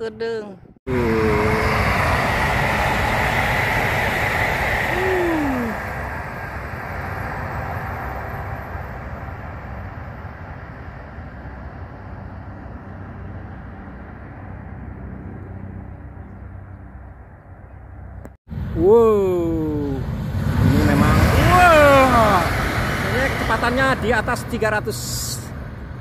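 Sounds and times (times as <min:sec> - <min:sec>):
brief falling tone: 0:00.9 - 0:08.2
train rushing past: 0:00.9 - 0:15.2, 0:19.5 - 0:26.0.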